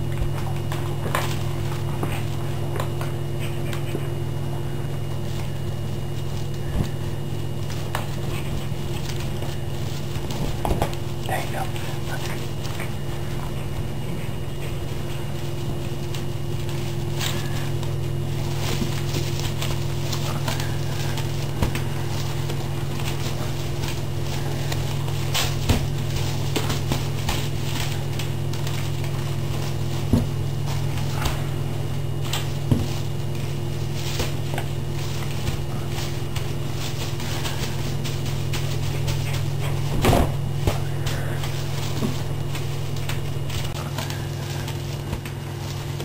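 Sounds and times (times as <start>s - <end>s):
steady low hum: 0.0s - 46.0s
broom scraping on tiled floor: 32.5s - 46.0s.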